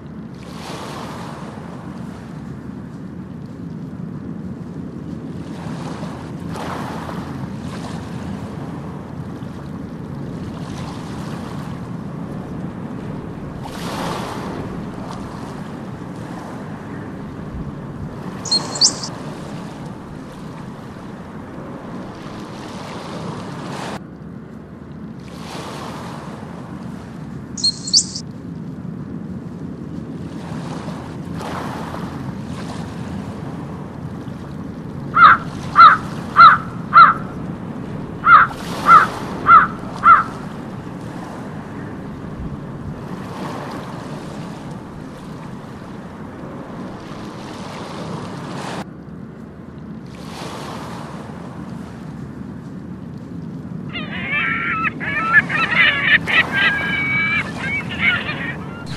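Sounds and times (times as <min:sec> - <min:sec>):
water and surf: 0:00.0 - 0:58.9
gull calls: 0:18.4 - 0:19.1, 0:27.6 - 0:28.2, 0:35.2 - 0:37.4, 0:38.2 - 0:42.1, 0:53.9 - 0:58.9
high double chirp: 0:18.5 - 0:19.1, 0:27.6 - 0:28.2, 0:53.9 - 0:58.9.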